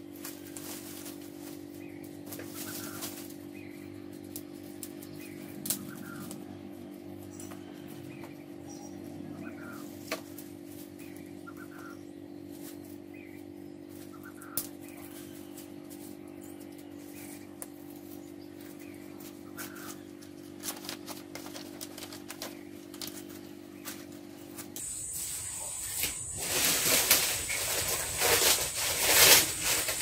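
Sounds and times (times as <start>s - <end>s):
steady low hum: 0.0s - 30.0s
faint bird chirps: 7.2s - 10.0s, 11.0s - 20.2s.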